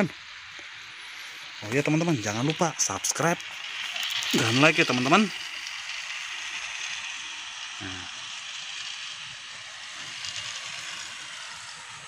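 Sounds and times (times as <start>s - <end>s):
toy train motors whirring: 0.0s - 12.0s
brief vocal sound: 7.8s - 8.1s.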